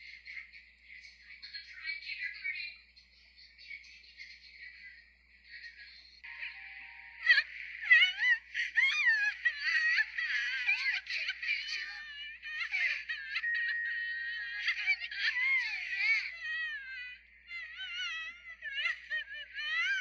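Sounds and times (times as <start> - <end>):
faint background music: 0.0 - 20.0
cartoon girl crying and sobbing: 7.2 - 20.0.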